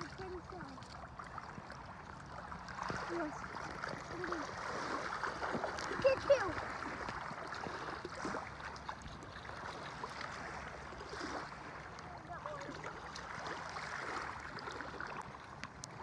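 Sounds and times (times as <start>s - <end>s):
feet wading in shallow water: 0.0s - 16.0s.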